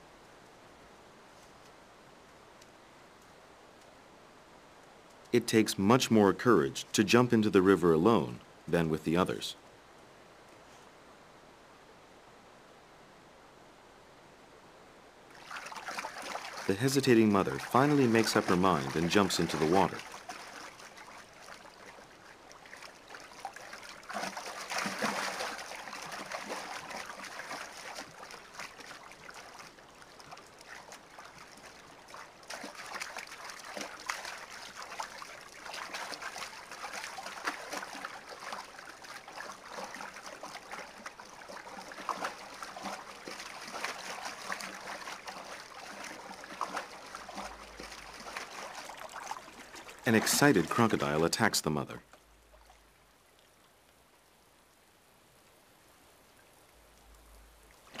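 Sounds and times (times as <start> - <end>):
river water splashing: 15.3 - 54.3.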